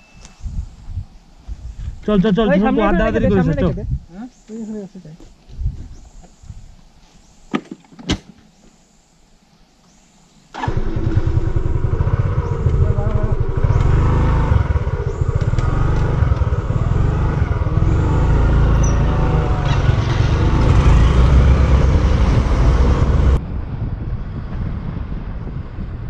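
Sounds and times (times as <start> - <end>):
wind buffeting microphone: 0.2 - 4.2, 5.4 - 6.8, 10.6 - 26.0
motorcycle engine running: 10.6 - 23.4.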